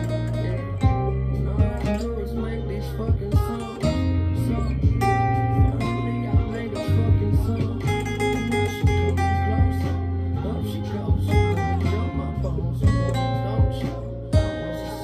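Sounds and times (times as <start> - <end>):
acoustic guitar playing: 0.0 - 15.0.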